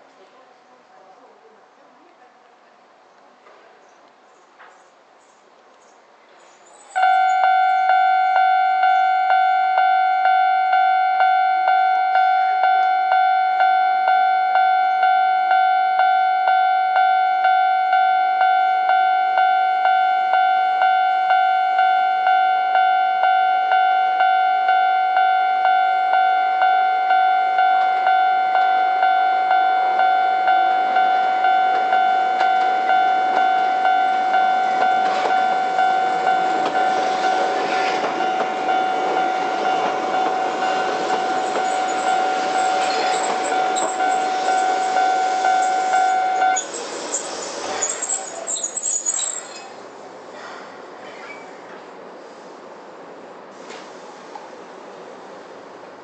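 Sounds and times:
level crossing warning bell: 6.8 - 46.8
train running noise: 27.5 - 56.0.

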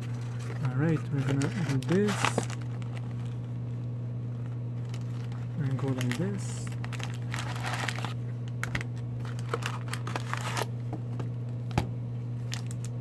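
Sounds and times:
foil packs rustling and crinkling: 0.0 - 3.5, 4.4 - 10.7, 12.5 - 12.8
low hum: 0.0 - 13.0.

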